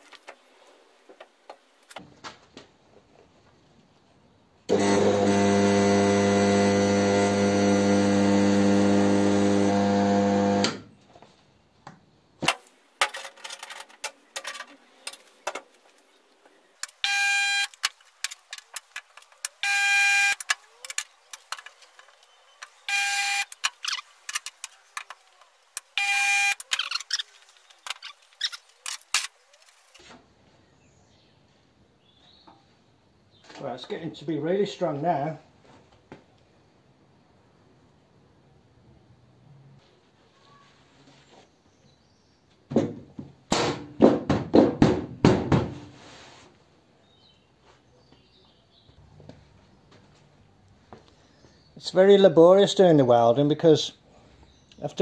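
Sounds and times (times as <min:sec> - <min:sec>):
clicks and clanks of welder: 0:04.7 - 0:10.8
spot welder buzzing: 0:04.7 - 0:10.9, 0:16.9 - 0:17.8, 0:19.6 - 0:20.6, 0:22.8 - 0:23.7, 0:25.9 - 0:27.0.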